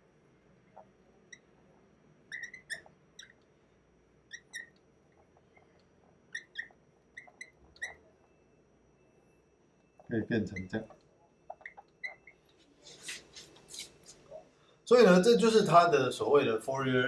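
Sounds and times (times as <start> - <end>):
marker squeaking on whiteboard: 0.7 - 3.4, 4.3 - 8.2, 10.0 - 14.5.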